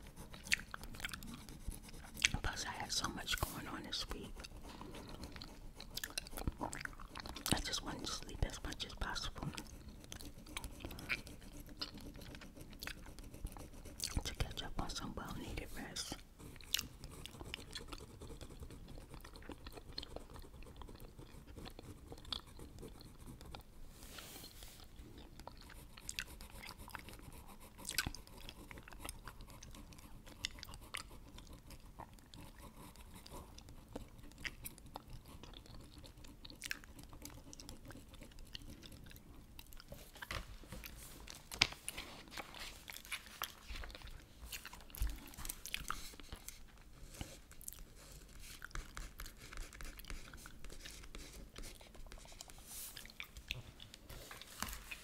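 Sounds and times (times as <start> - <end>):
gum chewing smacks: 0.2 - 2.8, 4.1 - 8.2, 8.9 - 13.2, 13.9 - 14.6, 16.6 - 23.7, 24.8 - 41.8, 42.8 - 46.8, 52.2 - 54.1
marker stroking on paper: 45.9 - 53.0.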